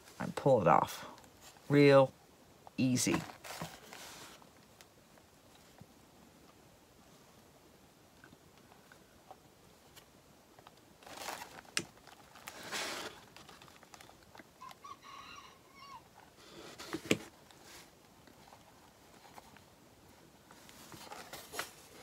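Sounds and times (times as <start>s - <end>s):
rustling and handling noises: 0.0s - 7.5s, 8.2s - 15.0s, 16.0s - 22.0s
faint hen call: 14.6s - 16.1s.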